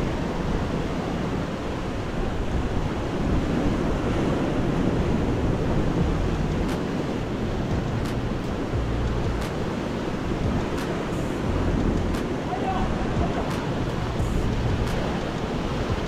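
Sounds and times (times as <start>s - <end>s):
waves washing against rocks: 0.0s - 16.0s
wind on microphone: 0.0s - 16.0s.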